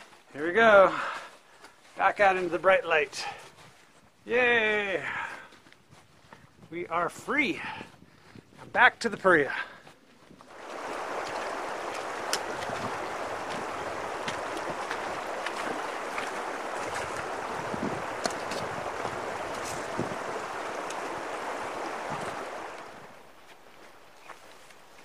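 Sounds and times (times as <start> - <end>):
river water rushing: 10.5 - 23.8.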